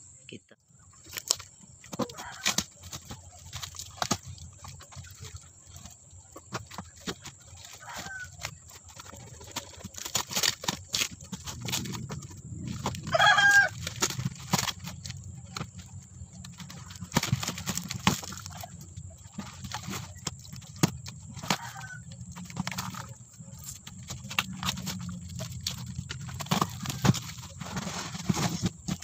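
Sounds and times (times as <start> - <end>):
cardboard and tape ripping: 1.1 - 4.7, 6.5 - 18.7, 19.4 - 29.0
chicken calling: 2.0 - 2.6, 7.7 - 8.5, 12.8 - 14.0, 21.4 - 22.1.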